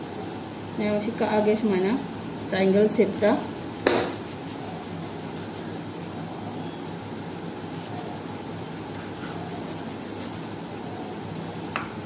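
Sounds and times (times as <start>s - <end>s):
background hum and hiss: 0.0s - 12.0s.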